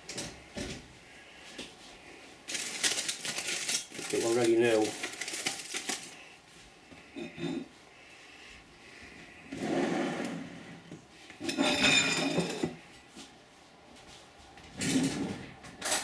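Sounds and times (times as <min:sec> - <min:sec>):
aluminium foil crinkling: 0:02.5 - 0:06.3
baking tray sliding on wood: 0:09.5 - 0:10.9.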